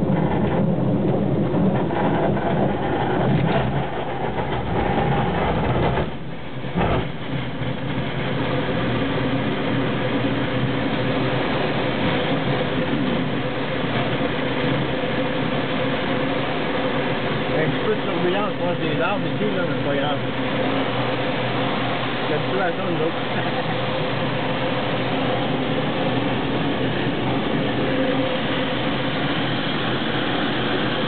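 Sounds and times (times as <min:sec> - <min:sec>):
glider cockpit rumble and rattle: 0:00.0 - 0:31.0.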